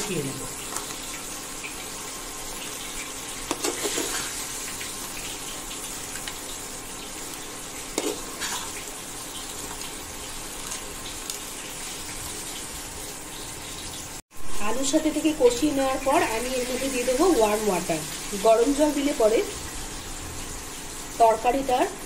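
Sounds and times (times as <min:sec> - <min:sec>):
curry sizzling in frying pan: 0:00.0 - 0:22.0.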